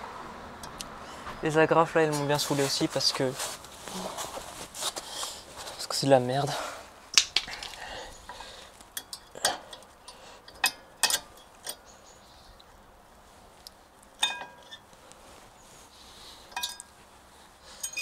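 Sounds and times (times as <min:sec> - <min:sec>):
small metal parts clicking: 0:07.2 - 0:11.8, 0:17.8 - 0:18.0.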